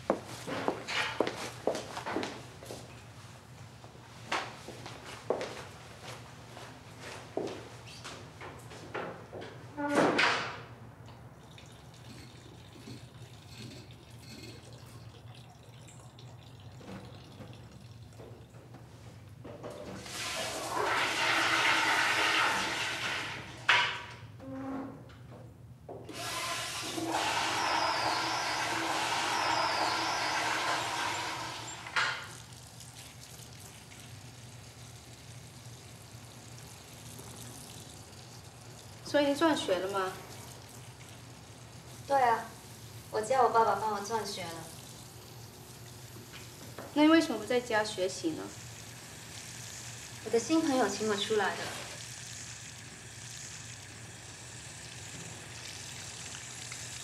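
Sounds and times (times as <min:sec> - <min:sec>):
water trickling and dripping: 0:11.0 - 0:18.8, 0:31.8 - 0:57.0
toilet flushing: 0:11.3 - 0:18.5, 0:19.9 - 0:24.2, 0:26.1 - 0:57.0.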